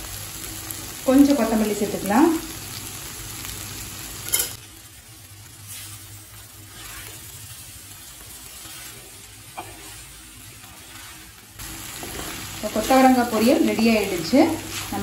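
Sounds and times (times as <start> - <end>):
faint sizzle: 0.0 - 15.0
spatula scraping a pot: 6.7 - 7.4, 8.4 - 13.2, 14.2 - 15.0.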